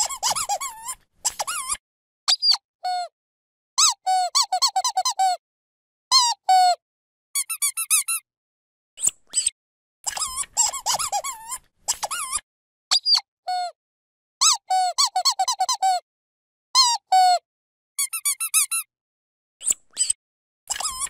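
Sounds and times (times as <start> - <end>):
dog squeaky toy squeaking: 0.0 - 3.0, 3.8 - 5.4, 7.4 - 8.2, 10.1 - 13.2, 14.4 - 16.0, 18.0 - 18.9, 19.6 - 21.0.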